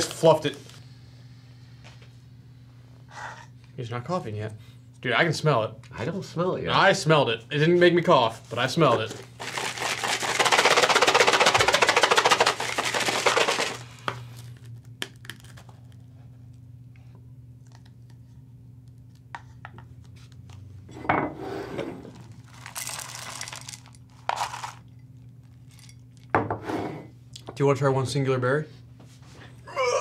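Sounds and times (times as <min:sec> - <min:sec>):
cereal poured into bowl: 0:09.4 - 0:14.1, 0:22.4 - 0:24.8.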